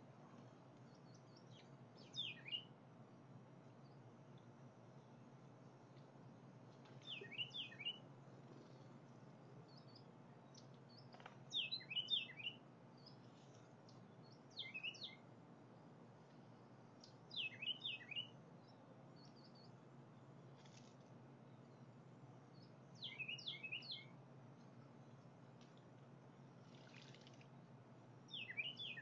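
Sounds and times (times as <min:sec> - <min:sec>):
low steady hum: 0:00.0 - 0:29.0
songbird singing: 0:00.0 - 0:29.0
faint bird chips: 0:20.5 - 0:21.1.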